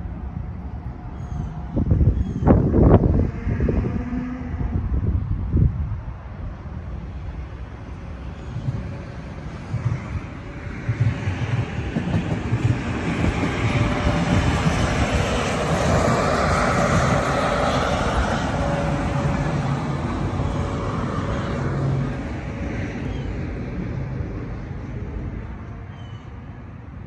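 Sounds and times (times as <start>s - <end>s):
passenger train passing: 0.0s - 27.0s.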